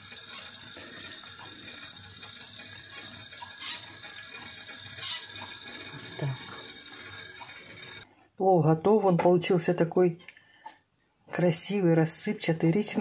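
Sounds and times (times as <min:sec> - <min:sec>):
food simmering in a frying pan: 0:00.0 - 0:08.1.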